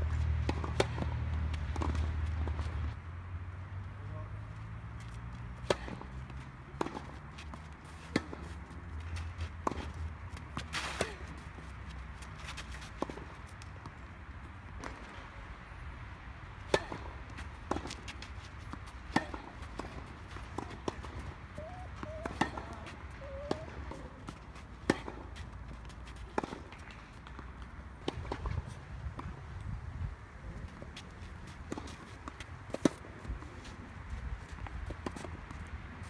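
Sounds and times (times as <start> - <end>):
rackets striking tennis ball: 16.6 - 28.6
ball bounces: 19.1 - 24.3.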